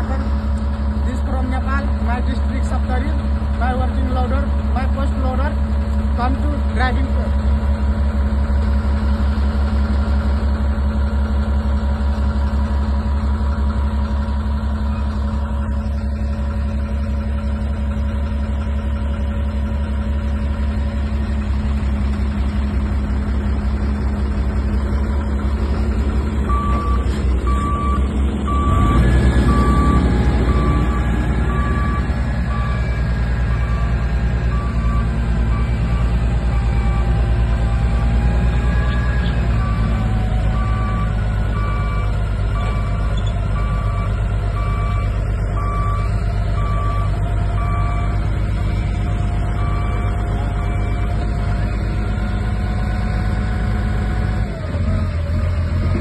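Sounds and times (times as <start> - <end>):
diesel engine idling: 0.0 - 56.0
engine revving: 24.2 - 45.0.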